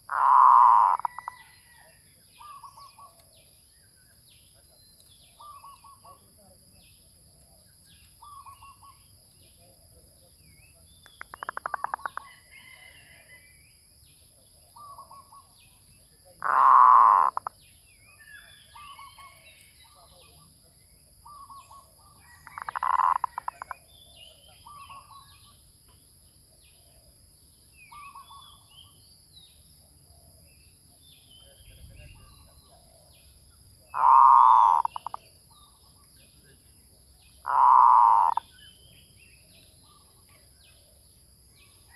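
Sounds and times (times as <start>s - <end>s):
small birds chirping: 0.0s - 12.8s, 13.6s - 41.9s
dove cooing: 34.0s - 35.1s, 37.5s - 38.4s.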